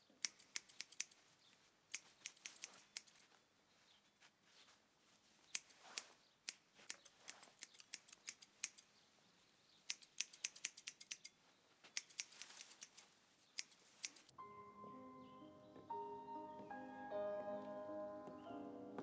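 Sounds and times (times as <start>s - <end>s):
scissors snipping hair: 0.2s - 1.2s, 1.9s - 3.3s, 5.5s - 8.9s, 9.9s - 14.3s.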